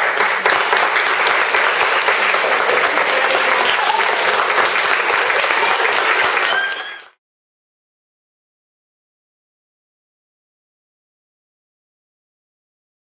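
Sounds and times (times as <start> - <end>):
children applauding: 0.0 - 7.2.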